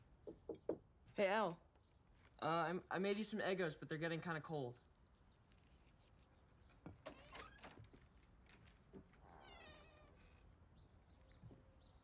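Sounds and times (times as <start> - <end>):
faint squeak: 9.2 - 10.6.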